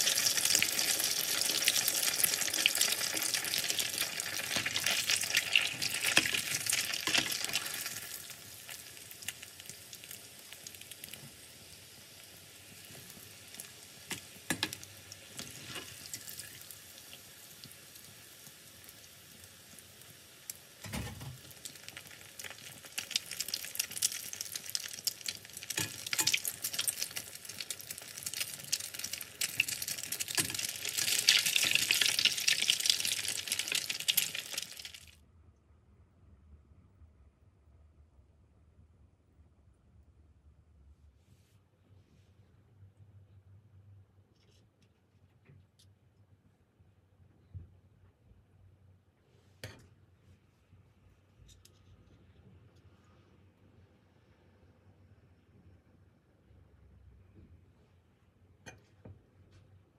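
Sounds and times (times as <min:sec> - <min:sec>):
food deep-frying in hot oil: 0:00.0 - 0:35.2.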